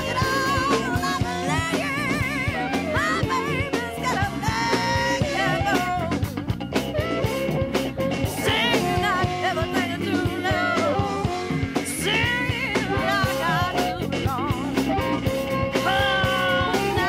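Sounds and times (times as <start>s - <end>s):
bending guitar melody: 0.0s - 17.0s
blues-rock song: 0.0s - 17.0s
steady drum beat: 0.0s - 17.0s.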